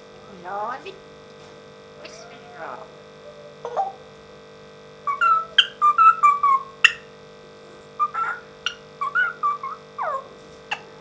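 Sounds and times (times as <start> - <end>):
electrical hum: 0.0 - 11.0
parrot whistling and chattering: 5.1 - 7.1, 8.0 - 10.9.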